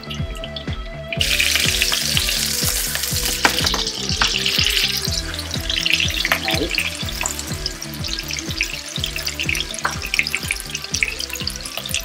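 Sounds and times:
background music with steady beat: 0:00.0 - 0:12.0
patties sizzling in oil: 0:01.2 - 0:12.0.

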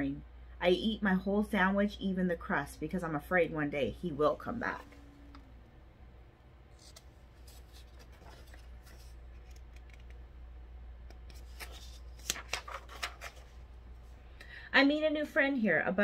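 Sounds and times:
low hum: 0:01.6 - 0:11.8
paper rustling: 0:06.7 - 0:10.2, 0:11.2 - 0:13.6
book page clicks: 0:06.8 - 0:08.6, 0:09.4 - 0:10.2, 0:11.1 - 0:13.3.

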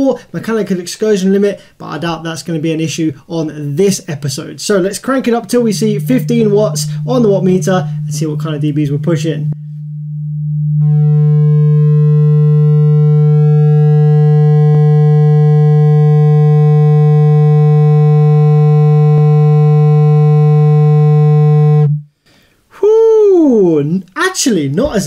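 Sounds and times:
buzzy sine test tone: 0:03.7 - 0:22.1.

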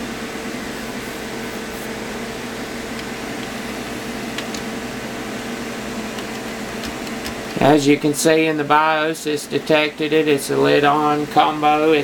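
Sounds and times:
computer fans whirring: 0:00.0 - 0:12.0.

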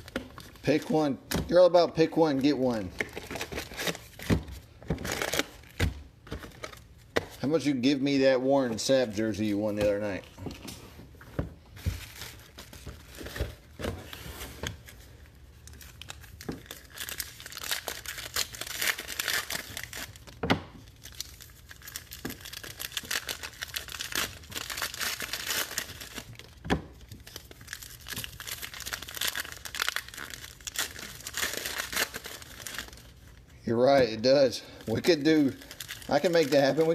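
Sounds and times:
foil wrapper tearing and crinkling: 0:15.7 - 0:33.4, 0:34.8 - 0:36.9.

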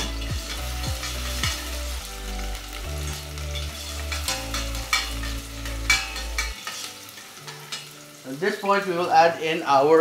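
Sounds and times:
onions sizzling in hot oil: 0:00.0 - 0:10.0
metal spatula scraping a pot: 0:03.1 - 0:08.0.

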